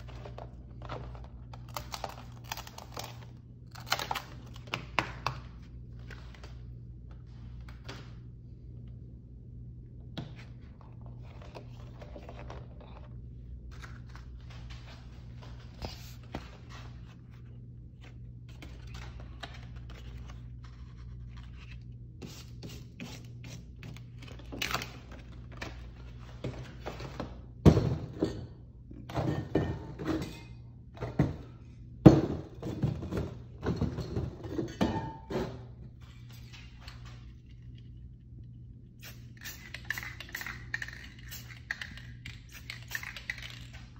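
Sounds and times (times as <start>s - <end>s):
steady low hum: 0.0s - 43.9s.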